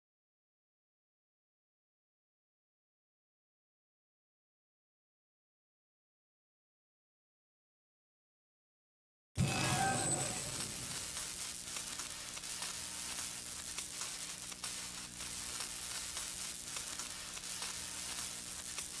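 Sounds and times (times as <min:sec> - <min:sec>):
electric crackling with snaps: 0:09.4 - 0:19.0.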